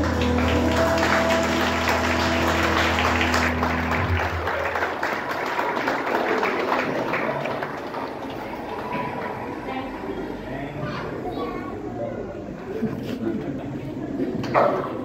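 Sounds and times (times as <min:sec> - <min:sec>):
recorded music: 0:00.0 - 0:05.0
audience applauding: 0:00.0 - 0:10.0.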